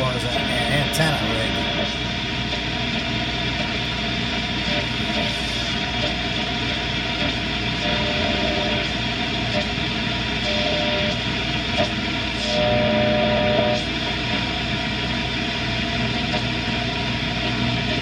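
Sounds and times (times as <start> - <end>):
radio static hiss: 0.0 - 2.4, 4.5 - 7.4.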